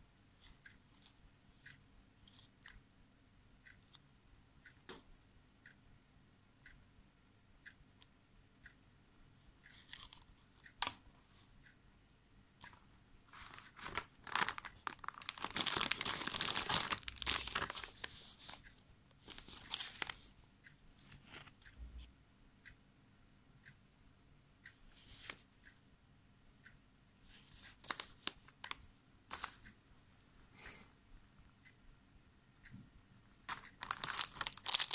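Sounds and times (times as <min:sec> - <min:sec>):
plastic bags crinkling: 0:13.3 - 0:18.6, 0:33.8 - 0:34.9.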